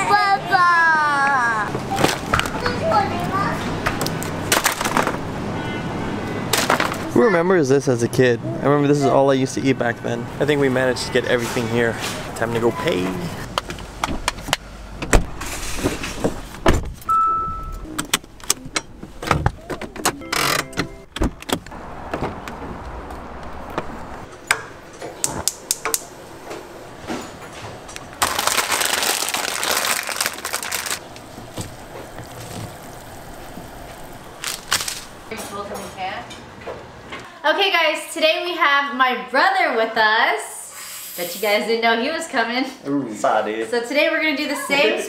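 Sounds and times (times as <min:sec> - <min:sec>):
short electronic beep: 0:17.1 - 0:17.9.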